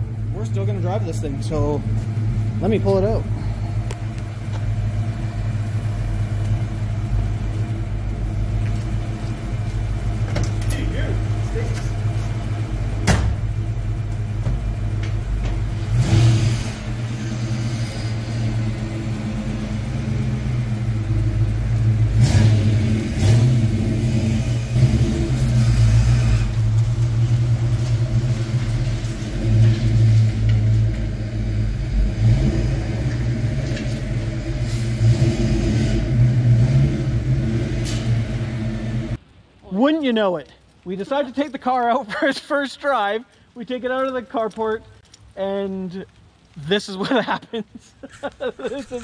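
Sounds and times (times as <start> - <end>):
car engine running: 0.0 - 39.2.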